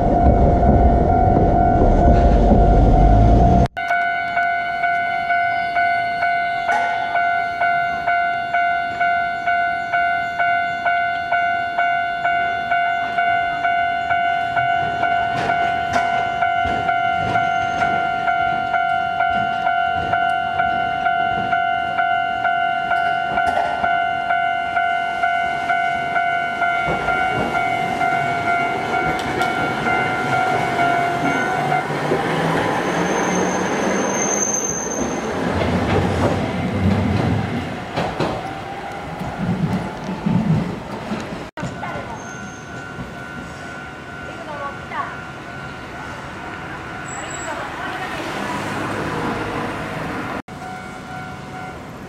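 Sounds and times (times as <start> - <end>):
tram passing: 0.0 - 52.0
level crossing bell dinging: 3.0 - 32.0, 41.6 - 46.2.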